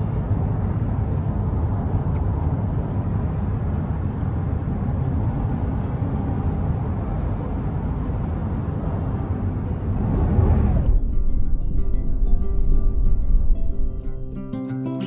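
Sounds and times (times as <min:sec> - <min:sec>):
road and tyre noise in car: 0:00.0 - 0:15.0.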